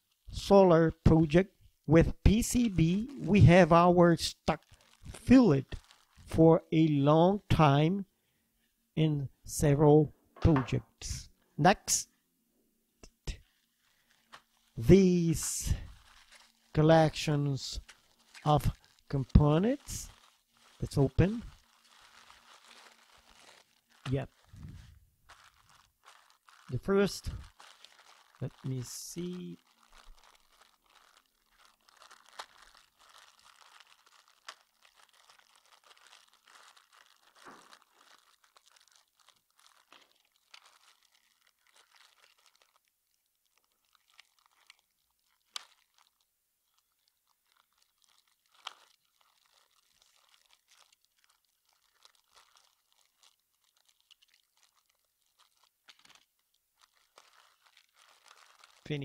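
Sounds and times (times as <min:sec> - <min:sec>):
plastic bag crinkling: 0:04.4 - 0:06.3, 0:13.3 - 0:14.8, 0:15.6 - 0:59.0.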